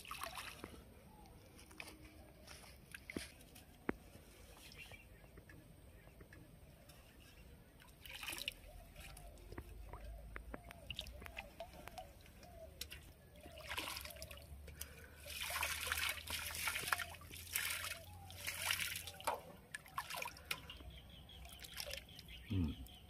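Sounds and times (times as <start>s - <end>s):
water splashing: 0.0s - 0.9s, 7.8s - 22.4s
water dripping and trickling: 0.0s - 4.0s, 7.7s - 23.0s.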